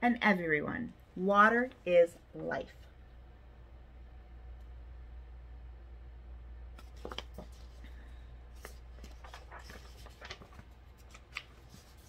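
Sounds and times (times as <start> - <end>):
low steady hum: 0.0 - 12.0
book pages turning: 6.7 - 12.0.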